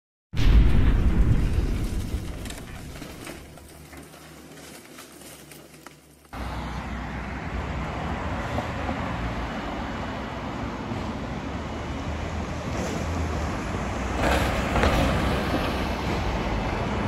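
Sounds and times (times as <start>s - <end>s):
booming intro sound effect: 0.4s - 3.6s
passing car traffic: 6.3s - 17.0s.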